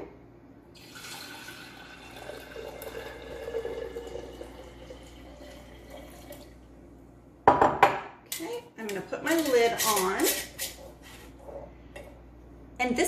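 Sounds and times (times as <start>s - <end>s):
water pouring into glass jar: 0.8s - 6.6s.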